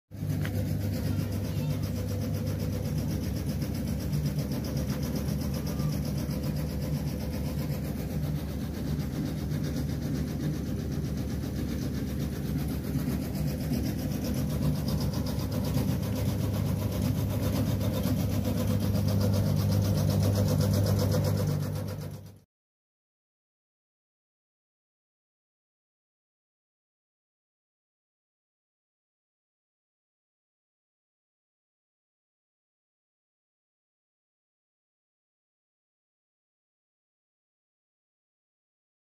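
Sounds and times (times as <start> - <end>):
engine idling: 0.1 - 22.4.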